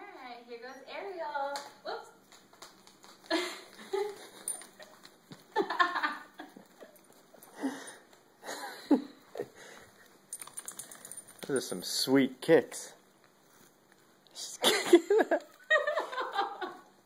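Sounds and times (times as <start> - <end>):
people laughing: 14.6 - 16.9.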